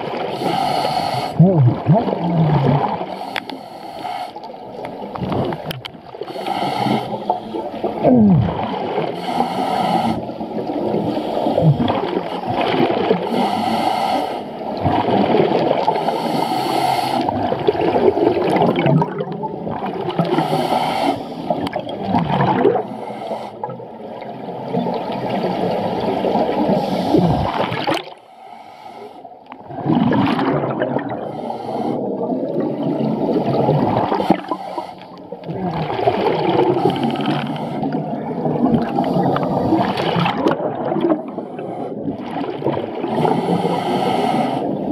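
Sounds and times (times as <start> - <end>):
exhaled bubbles gurgling: 0.0 - 3.6, 4.4 - 28.2, 29.4 - 44.9
scuba regulator breathing: 0.2 - 1.4, 2.9 - 4.7, 6.2 - 7.9, 9.0 - 12.5, 13.2 - 14.7, 15.8 - 17.4, 20.3 - 21.7, 22.7 - 23.9, 26.6 - 29.5, 31.0 - 32.5, 34.0 - 35.5, 36.5 - 40.0, 41.2 - 42.3, 43.0 - 44.9.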